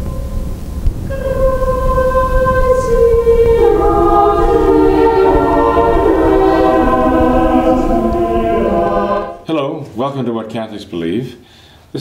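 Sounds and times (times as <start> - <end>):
steady low rumble: 0.0 - 9.4
choir singing held chords: 0.0 - 9.5.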